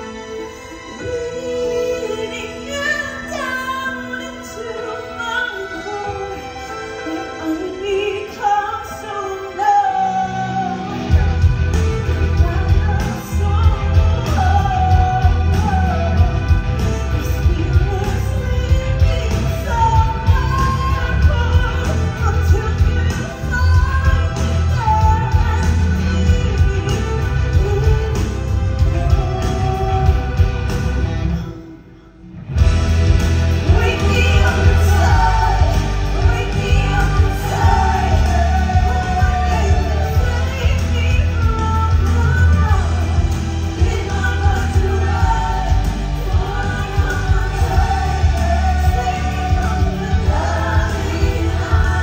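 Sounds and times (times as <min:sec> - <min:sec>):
woman singing: 0:00.0 - 0:32.0, 0:33.5 - 0:52.0
loud accompaniment with heavy bass: 0:10.2 - 0:31.6, 0:32.2 - 0:52.0
backing track with heavy bass: 0:32.5 - 0:52.0
person singing: 0:33.5 - 0:52.0.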